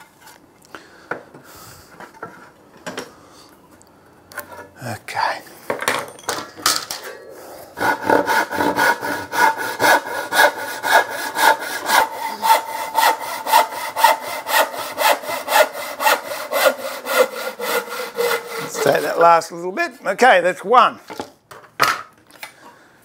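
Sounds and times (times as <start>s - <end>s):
hand saw cutting wood: 7.8s - 19.4s.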